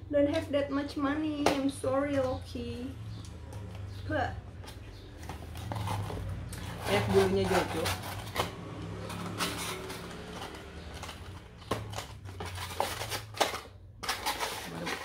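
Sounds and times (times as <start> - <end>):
sharp taps and scrapes: 3.2 - 15.0.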